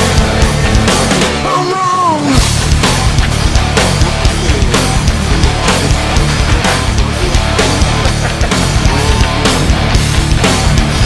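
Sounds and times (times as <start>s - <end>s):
heavy rock music: 0.0s - 11.0s.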